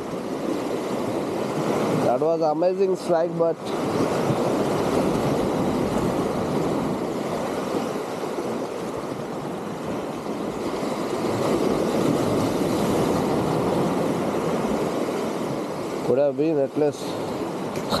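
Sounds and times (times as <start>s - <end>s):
sea waves breaking on concrete: 10.6s - 16.2s.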